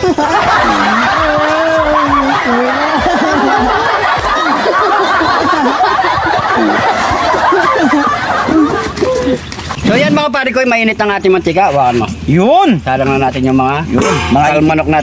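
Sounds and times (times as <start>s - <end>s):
men laughing and whooping: 0.0s - 10.2s
man's long cry: 0.7s - 3.4s.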